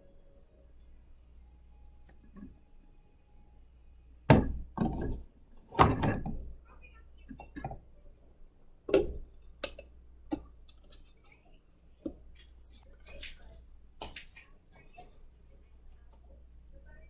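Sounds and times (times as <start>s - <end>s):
glass parts knocking: 5.8s - 6.4s.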